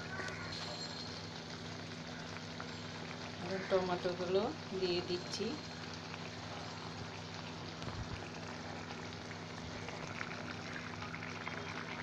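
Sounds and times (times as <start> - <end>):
gravy simmering and bubbling: 0.0 - 12.0.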